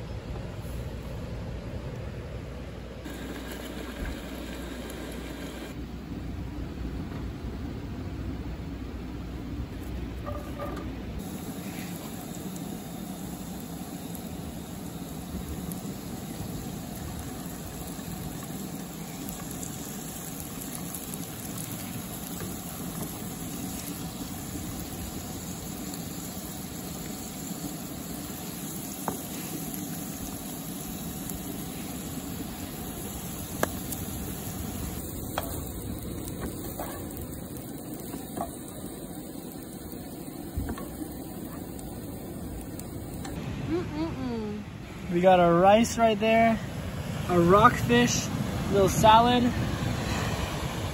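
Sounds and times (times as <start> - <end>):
food sizzling in a frying pan: 3.1 - 5.7, 11.2 - 43.4.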